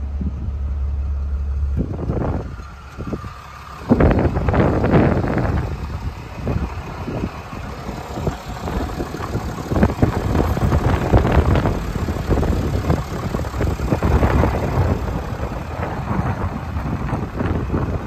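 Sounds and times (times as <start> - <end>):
diesel engine idling: 0.0 - 18.0
wind buffeting microphone: 0.0 - 18.0.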